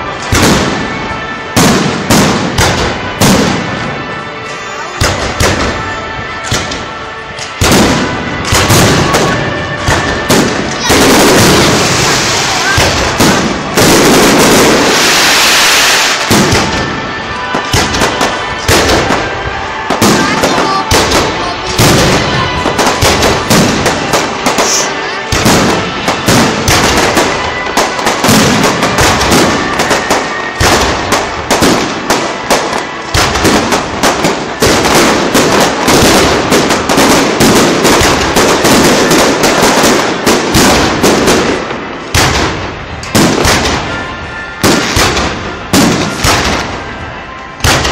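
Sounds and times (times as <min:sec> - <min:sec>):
fireworks bangs and crackles: 0:00.0 - 0:47.9.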